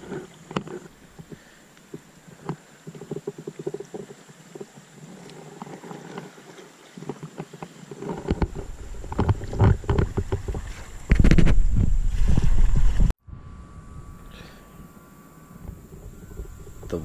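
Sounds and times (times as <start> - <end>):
paddle dipping in water: 0.0 - 13.1
water lapping against raft: 0.0 - 13.1
small knocks: 7.0 - 11.5
wind buffeting microphone: 8.1 - 17.0.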